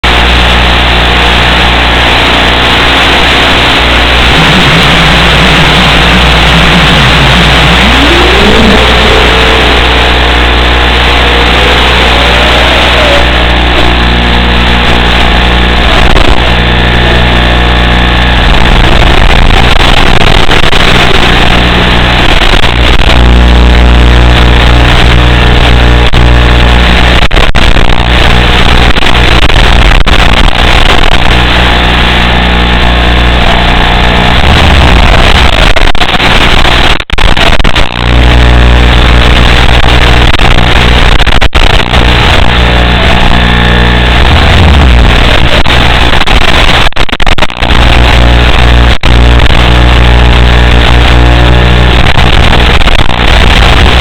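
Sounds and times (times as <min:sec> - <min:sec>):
static hiss: 0:00.0 - 0:54.0.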